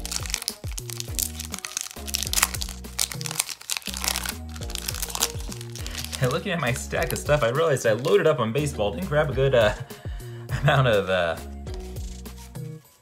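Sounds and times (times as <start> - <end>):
wrapper crinkling: 0.0 - 7.3
background music: 0.0 - 13.0.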